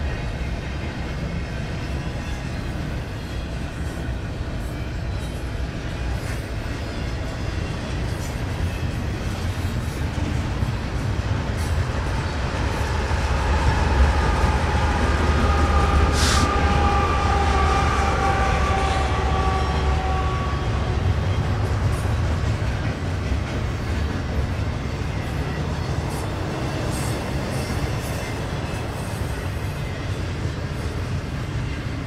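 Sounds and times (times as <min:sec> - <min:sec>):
train wheels rumbling on rail: 0:00.0 - 0:32.0
brief hiss: 0:16.1 - 0:16.5.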